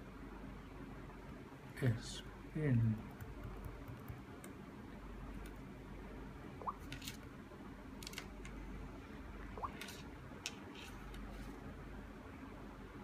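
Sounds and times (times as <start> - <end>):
stylus tapping on touchscreen: 3.0 - 4.2.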